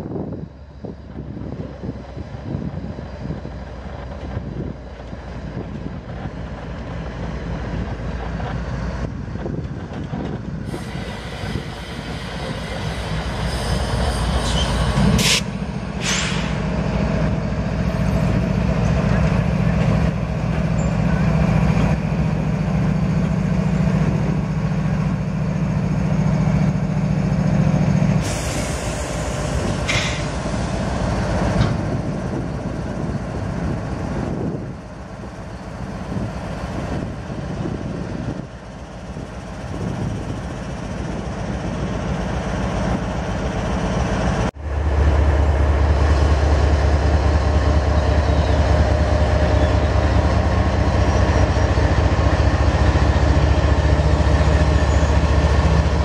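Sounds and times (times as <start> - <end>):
diesel locomotive engine drone: 0.0 - 56.0
brief air hisses: 10.7 - 16.7, 28.2 - 30.7.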